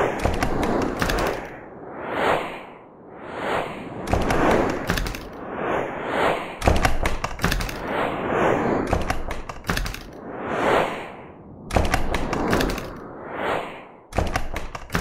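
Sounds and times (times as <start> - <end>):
whoosh effects: 0.0 - 14.1
sharp taps: 8.9 - 10.1.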